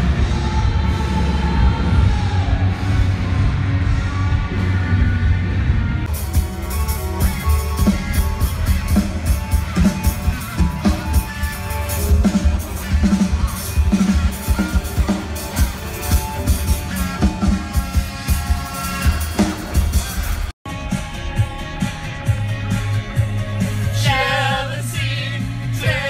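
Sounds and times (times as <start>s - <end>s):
guitar: 0.0s - 26.0s
live rock band: 0.0s - 26.0s
drum kit beat: 6.0s - 26.0s.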